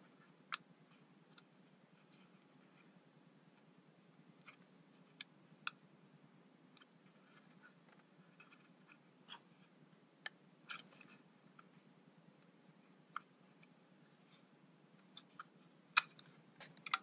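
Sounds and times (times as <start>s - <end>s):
small clicks and light taps: 14.4s - 17.0s.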